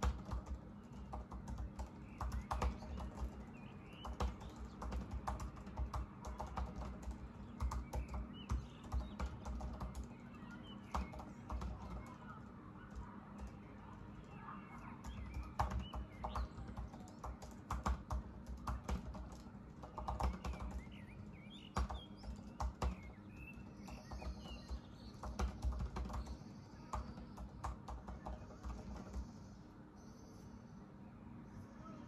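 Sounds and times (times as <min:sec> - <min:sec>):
laptop keyboard typing: 0:00.0 - 0:29.6
birds chirping faintly: 0:00.0 - 0:32.0.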